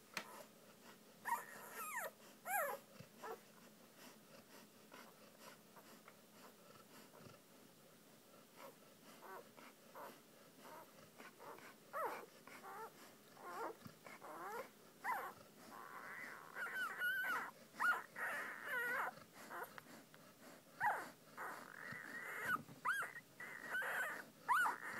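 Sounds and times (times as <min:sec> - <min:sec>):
puppies whining and whimpering: 0:01.2 - 0:03.4, 0:08.6 - 0:19.7, 0:20.4 - 0:24.9.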